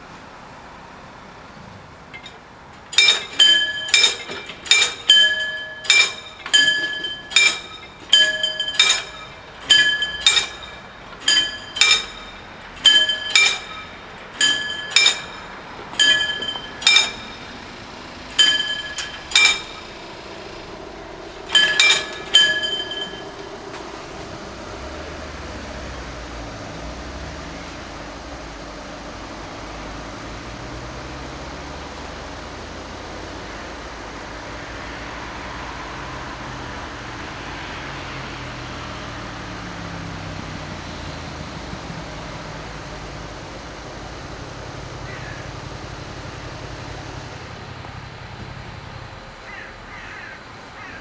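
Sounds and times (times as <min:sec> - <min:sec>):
level crossing bells clanging: 0:02.1 - 0:27.7.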